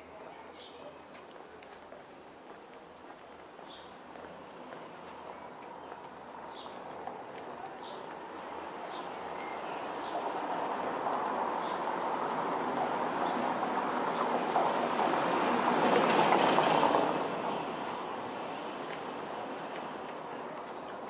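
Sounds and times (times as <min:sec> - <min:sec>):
tyres rumbling on brick pavement: 0:01.2 - 0:21.0
car engine passing: 0:09.9 - 0:20.3.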